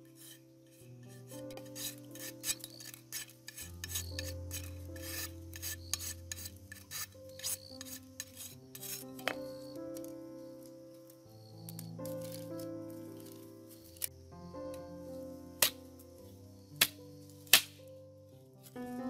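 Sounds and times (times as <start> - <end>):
knife scraping bamboo: 0.0 - 9.7, 11.7 - 12.6
soft background music: 0.0 - 19.0.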